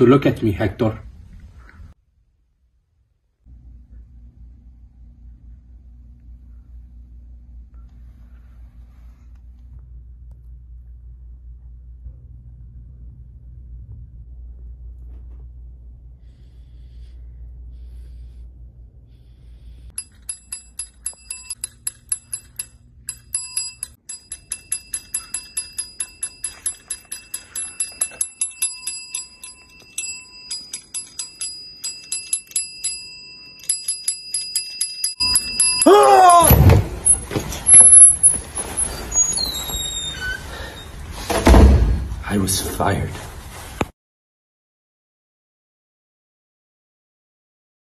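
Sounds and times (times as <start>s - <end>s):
low hum: 1.0s - 38.9s
desk call bell dinging: 19.9s - 38.4s.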